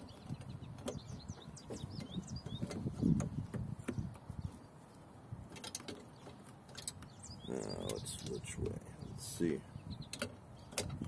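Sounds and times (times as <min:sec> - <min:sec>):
small birds chirping: 0:00.0 - 0:05.2, 0:05.8 - 0:11.0.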